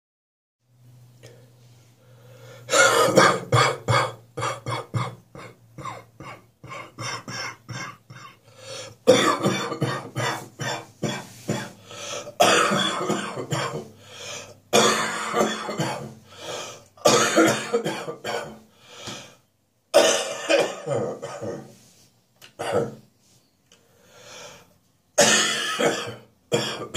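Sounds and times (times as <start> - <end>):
person coughing hard: 2.7 - 14.0, 14.7 - 18.6, 19.9 - 21.7, 22.6 - 23.0, 25.2 - 26.9.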